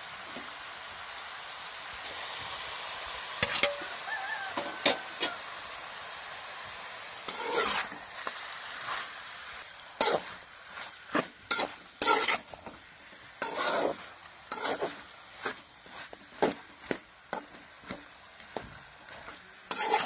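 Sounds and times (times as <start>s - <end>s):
low frying sizzle: 0.0s - 20.0s
metal spatula scraping pan: 3.4s - 3.9s, 4.6s - 5.4s, 7.3s - 8.1s, 9.9s - 20.0s.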